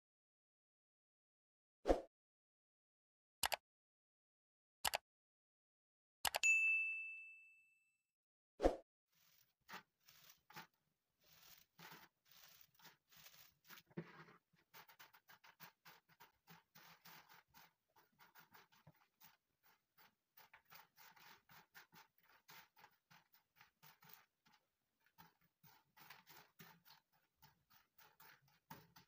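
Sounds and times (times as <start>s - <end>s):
dried leaves crackling on metal tray: 9.2s - 29.0s.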